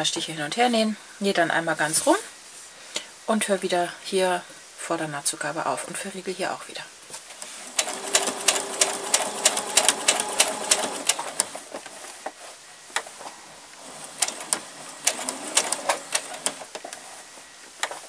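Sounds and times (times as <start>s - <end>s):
sewing machine stitching clicks: 7.4s - 11.6s, 14.0s - 16.8s.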